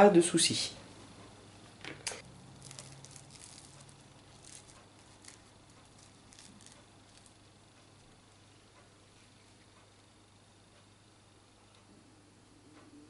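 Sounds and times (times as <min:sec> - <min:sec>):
crisp pastry shell crackling: 0:01.9 - 0:08.5.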